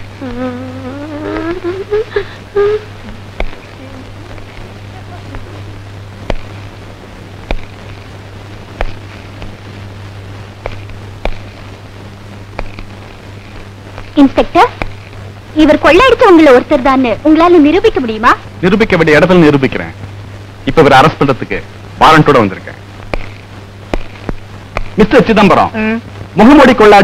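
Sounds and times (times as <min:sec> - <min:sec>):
low hum: 0:00.0 - 0:26.4
film soundtrack clicks and pops: 0:03.4 - 0:03.6, 0:06.2 - 0:06.8, 0:07.4 - 0:09.7, 0:10.6 - 0:11.9, 0:12.5 - 0:15.3, 0:23.0 - 0:25.0.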